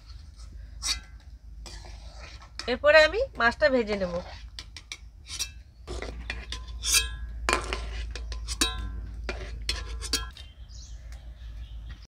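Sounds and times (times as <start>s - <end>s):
metal ladle clinking in pot: 6.3s - 10.4s.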